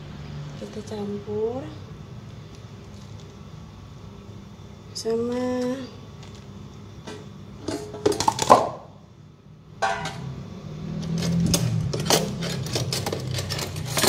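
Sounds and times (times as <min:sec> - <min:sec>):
kitchenware clinking: 0:09.8 - 0:10.3.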